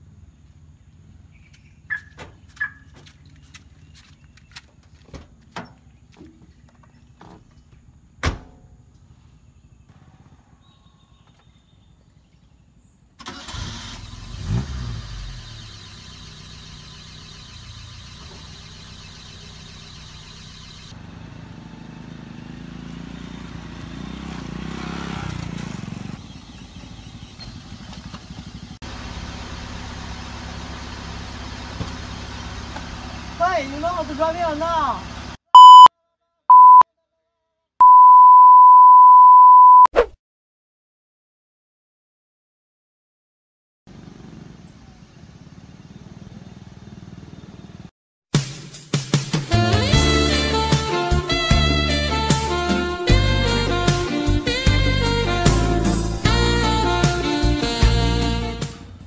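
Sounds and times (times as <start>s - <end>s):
car door shutting: 8.2s - 8.6s
car engine starting and idling: 9.6s - 23.7s, 26.0s - 35.4s.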